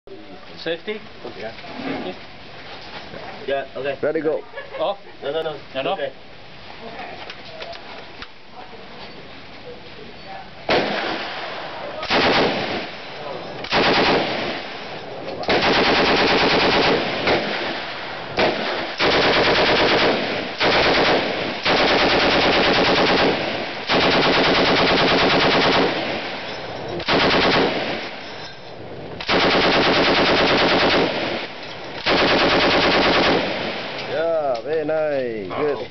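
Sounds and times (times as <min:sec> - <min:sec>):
machine gun automatic fire: 0:12.0 - 0:12.9, 0:13.7 - 0:14.7, 0:15.5 - 0:17.8, 0:18.4 - 0:26.2, 0:27.0 - 0:28.1, 0:29.2 - 0:34.2.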